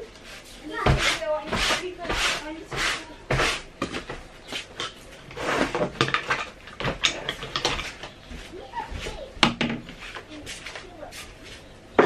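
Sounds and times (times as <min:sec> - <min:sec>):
broom brushing sofa cushion: 0:00.2 - 0:03.7
knocks and clatter: 0:09.4 - 0:10.0.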